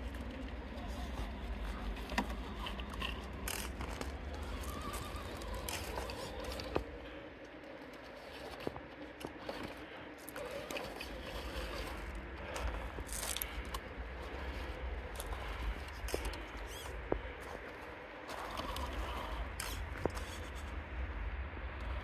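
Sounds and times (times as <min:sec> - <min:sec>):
tyres scraping gravel: 0:00.0 - 0:20.8
steady low rumble: 0:00.0 - 0:22.0
rc car motor whine: 0:01.8 - 0:07.2, 0:18.3 - 0:20.6.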